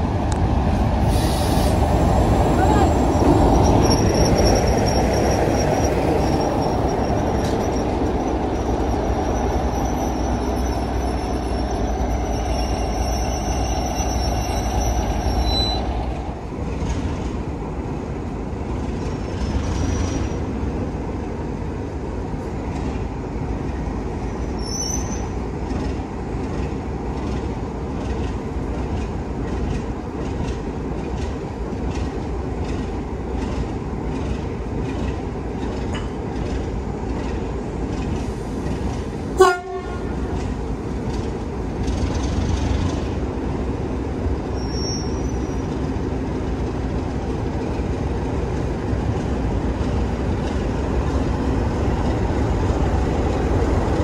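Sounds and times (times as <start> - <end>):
train rumble: 0.0 - 54.0
high wheel squeal: 2.6 - 16.0, 24.6 - 25.4, 44.5 - 45.7
wheels clicking over rail joints: 25.6 - 43.7.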